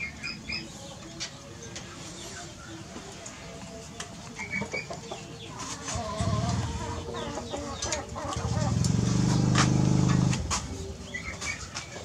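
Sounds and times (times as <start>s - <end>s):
trilled clucking animal calls: 4.3s - 9.1s.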